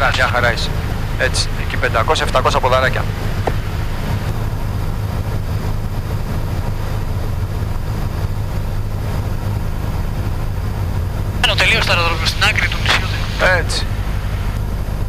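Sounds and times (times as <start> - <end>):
light aircraft engine droning in cabin: 0.0 - 15.0.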